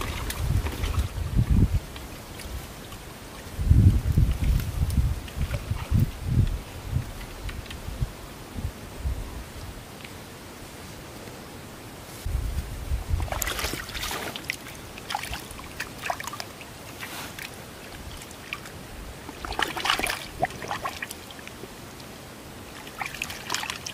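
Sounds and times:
water sloshing in a bag: 0.0s - 1.3s, 13.1s - 21.6s, 22.7s - 23.9s.

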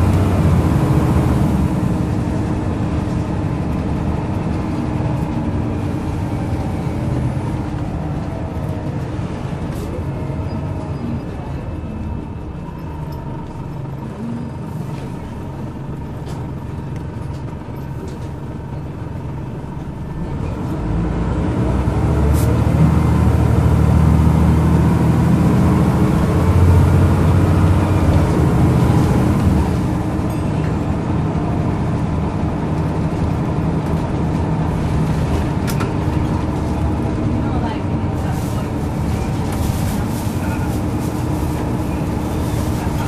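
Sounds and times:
bus diesel engine: 0.0s - 43.0s.

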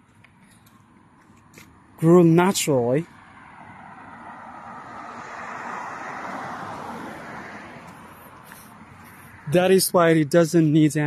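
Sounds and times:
vehicle passing by: 3.0s - 9.8s.

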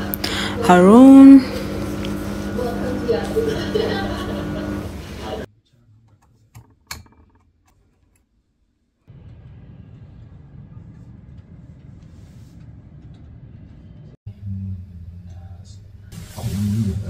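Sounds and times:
distant city traffic rumble: 9.1s - 14.2s.

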